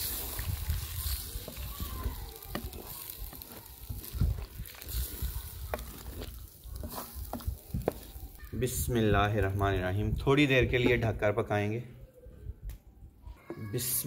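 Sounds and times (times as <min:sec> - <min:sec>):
ladle scraping clay pot: 0:00.0 - 0:08.6
curry sizzling: 0:00.0 - 0:10.8.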